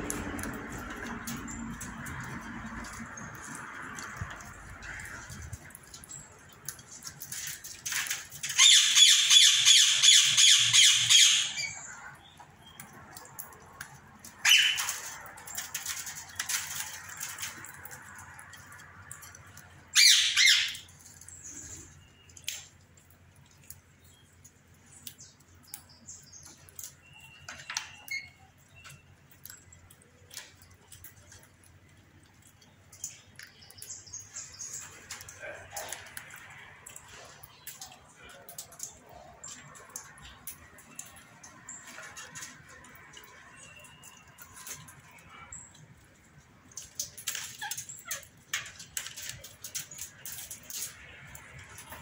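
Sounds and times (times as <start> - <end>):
parakeets screeching: 8.4 - 12.0, 14.4 - 15.2, 19.9 - 20.9.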